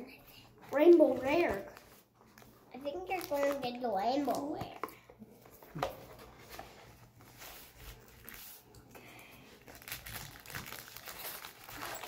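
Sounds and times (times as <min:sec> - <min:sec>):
cardboard packaging rustling: 0:09.6 - 0:12.0.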